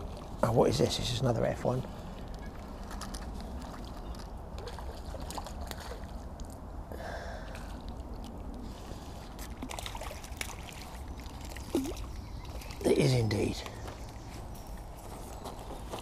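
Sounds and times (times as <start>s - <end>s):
fish splashing in water: 2.5s - 6.7s, 7.7s - 12.9s.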